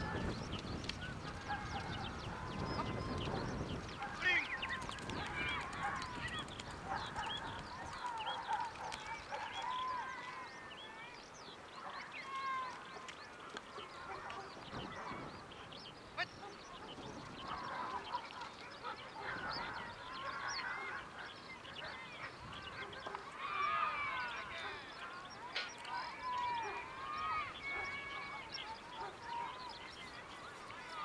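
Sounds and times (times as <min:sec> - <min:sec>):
wild birds chirping and whistling: 0:00.0 - 0:31.0.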